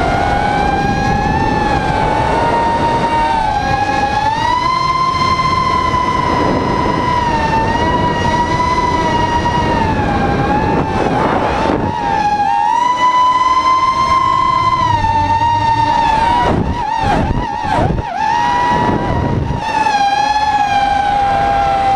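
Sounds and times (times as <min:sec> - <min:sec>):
quadcopter motors whining: 0:00.0 - 0:21.9.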